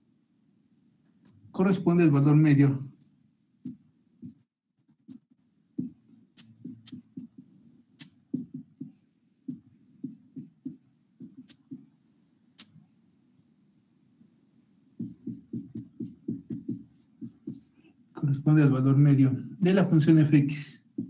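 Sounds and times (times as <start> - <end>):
marker tapping on whiteboard: 3.6 - 4.4, 5.1 - 11.9, 15.0 - 17.8.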